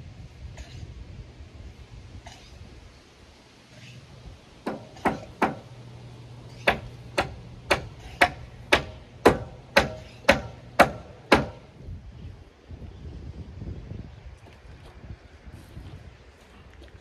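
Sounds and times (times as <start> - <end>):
hammer striking nails into timber: 4.6 - 5.7, 6.6 - 11.6.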